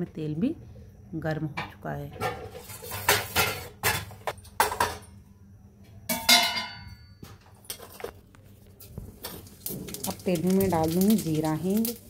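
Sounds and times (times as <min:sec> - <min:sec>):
kitchenware clattering: 0:01.6 - 0:05.2, 0:06.1 - 0:08.2
metal clang ringing: 0:06.1 - 0:07.4.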